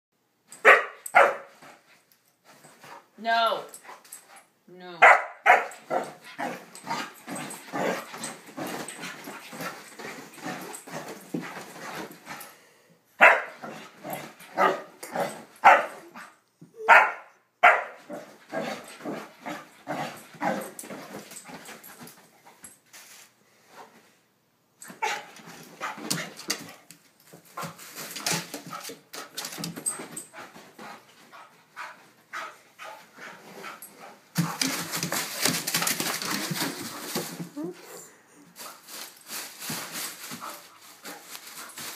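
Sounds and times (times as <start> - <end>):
small dog barking: 0.6 - 1.5, 5.0 - 6.0, 13.2 - 13.6, 15.6 - 15.9, 16.8 - 18.0.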